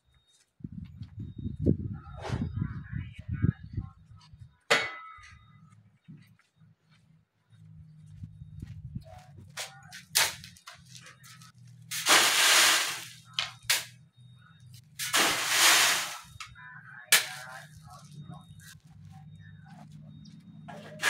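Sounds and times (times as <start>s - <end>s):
sand sliding through wire mesh: 11.9s - 13.2s, 15.0s - 16.3s.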